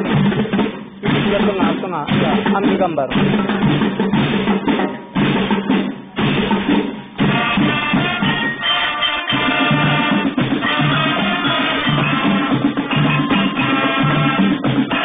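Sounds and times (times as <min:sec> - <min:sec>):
marching drumline: 0:00.0 - 0:15.0
brass held chords: 0:07.2 - 0:15.0.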